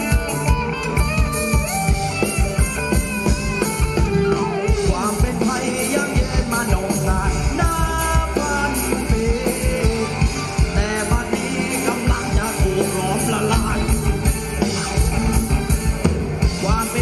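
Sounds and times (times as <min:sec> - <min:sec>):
keyboard and guitar melody: 0:00.0 - 0:17.0.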